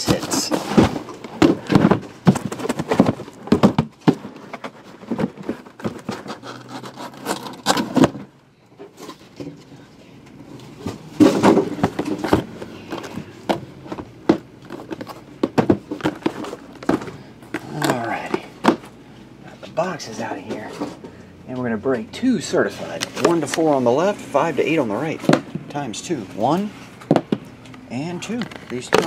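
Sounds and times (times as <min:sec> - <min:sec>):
cardboard boxes knocking and sliding: 0:00.0 - 0:08.3, 0:10.8 - 0:17.2.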